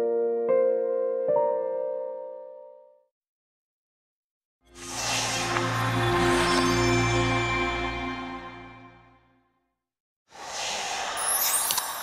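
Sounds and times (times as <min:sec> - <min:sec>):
whoosh: 0:04.7 - 0:07.1, 0:10.3 - 0:12.0
glittering chime-like tones: 0:05.6 - 0:08.2, 0:11.2 - 0:12.0.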